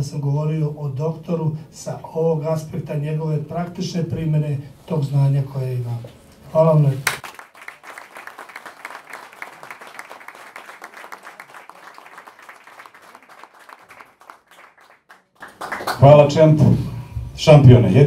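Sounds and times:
audience applauding: 7.0 - 16.1.

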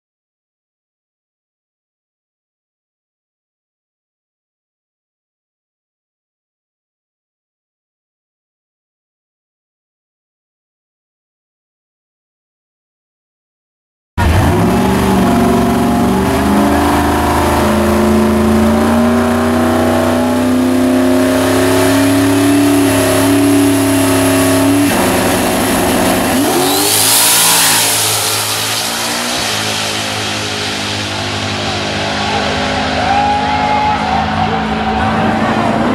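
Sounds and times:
drag car engine revving: 14.2 - 35.9.

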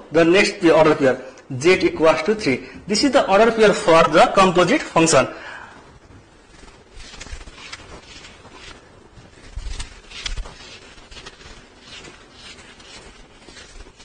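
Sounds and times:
scratchy writing strokes: 6.4 - 14.0.

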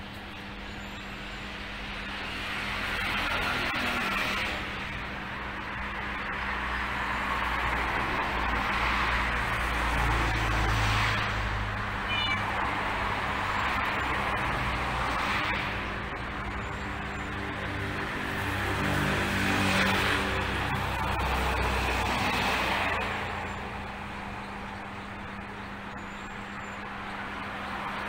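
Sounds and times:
cats meowing: 12.1 - 12.6.

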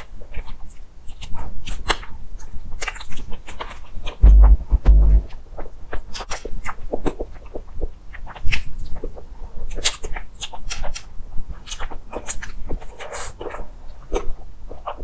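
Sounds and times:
chewing and wet mouth smacks: 6.1 - 15.0.

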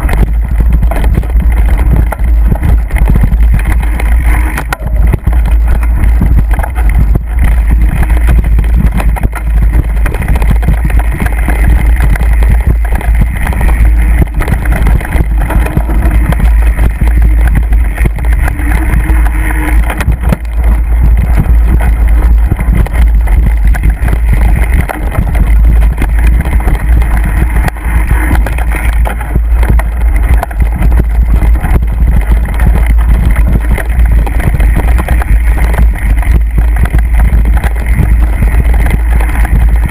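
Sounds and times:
bike knocking and rattling: 0.0 - 39.9
wind buffeting microphone: 0.0 - 39.9.

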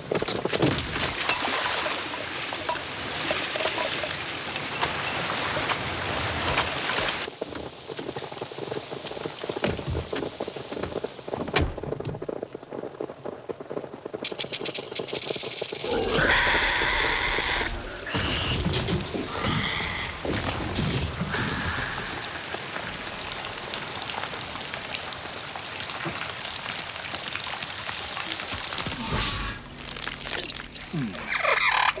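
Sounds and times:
heavy rain pouring: 0.7 - 32.0
rasping creature call: 15.8 - 20.3, 30.8 - 32.0.

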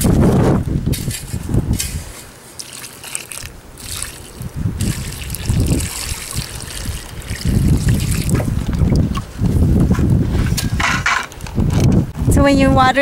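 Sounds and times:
water splashing onto soil: 1.8 - 9.3.

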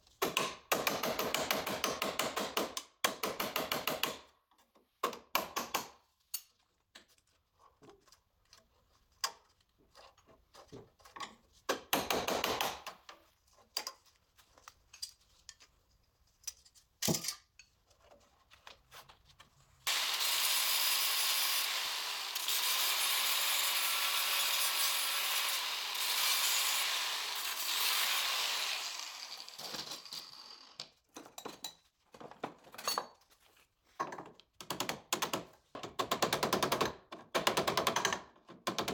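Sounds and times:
power tool running on steel: 19.9 - 30.7.

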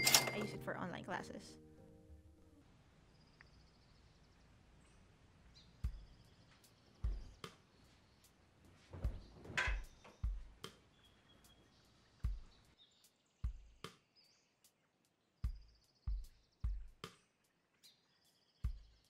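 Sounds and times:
dull thumps of bedding: 8.9 - 9.9.

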